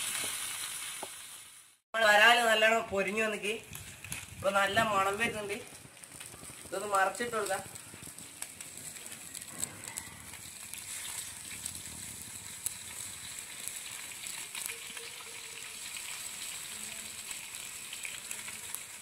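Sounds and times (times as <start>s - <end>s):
fish frying in hot oil: 0.0s - 1.8s, 3.6s - 19.0s.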